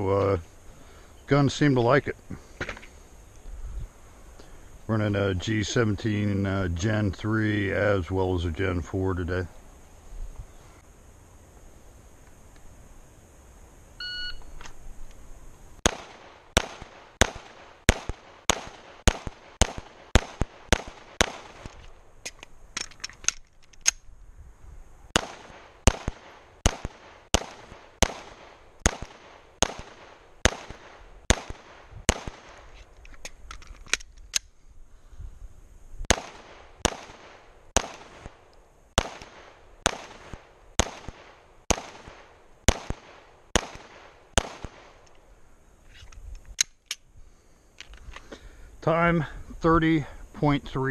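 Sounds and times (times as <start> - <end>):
shot timer beep: 14.0 - 14.6
pistol shots: 15.8 - 21.8, 25.2 - 32.7, 36.1 - 45.0.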